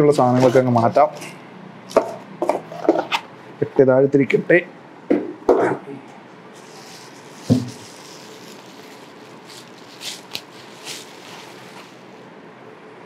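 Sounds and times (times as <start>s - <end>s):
bubble wrap crinkling: 6.6s - 12.3s
soft thump: 7.5s - 7.8s.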